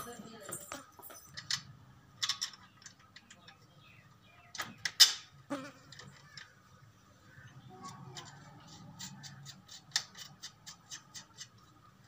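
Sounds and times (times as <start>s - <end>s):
metal clicks and knocks: 0.5s - 3.6s.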